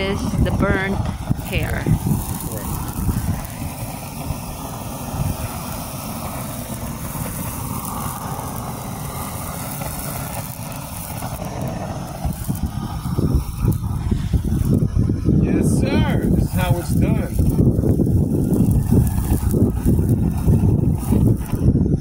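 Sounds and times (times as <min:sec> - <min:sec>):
propane torch burning: 0:00.0 - 0:22.0.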